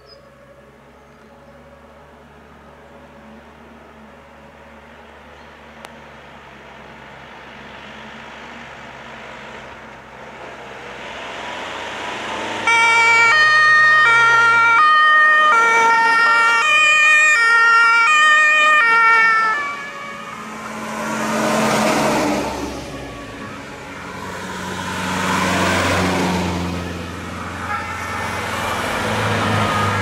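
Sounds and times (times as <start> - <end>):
vehicles driving past: 0.0 - 30.0
two-tone emergency siren: 12.6 - 26.2, 27.3 - 30.0.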